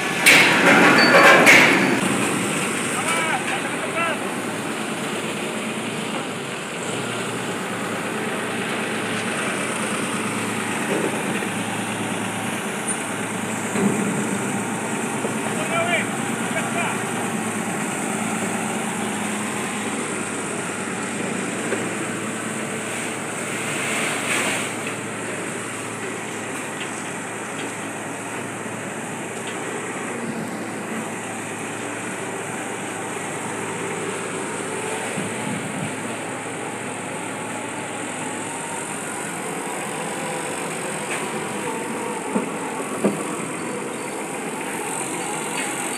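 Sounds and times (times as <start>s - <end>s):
forklift engines running: 0.0s - 45.9s.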